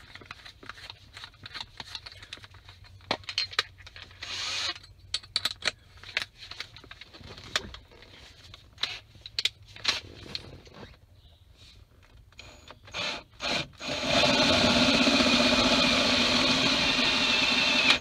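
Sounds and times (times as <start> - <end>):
drill and bits clicking and rattling: 3.4 - 5.8, 12.3 - 18.0.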